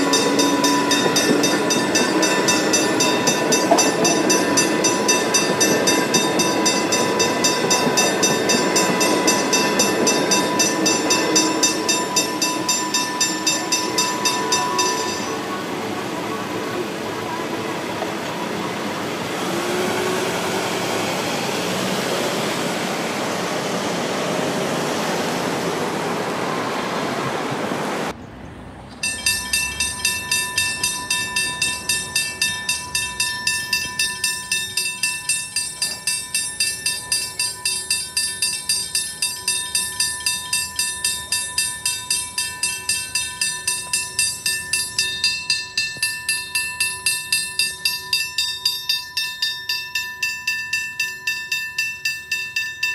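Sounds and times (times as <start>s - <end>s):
level crossing warning bell ringing: 0.0s - 21.2s, 29.0s - 52.9s
vehicles rushing past: 0.0s - 34.4s.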